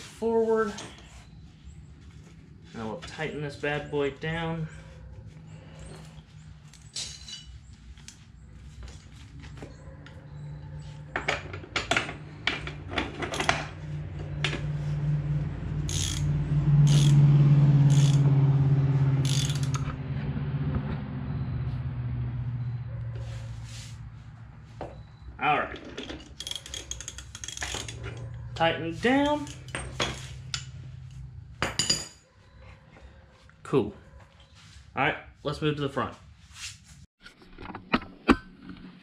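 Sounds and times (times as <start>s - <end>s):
ratchet wrench clicking: 15.8s - 17.2s, 17.9s - 18.3s, 19.2s - 20.0s, 26.4s - 28.1s.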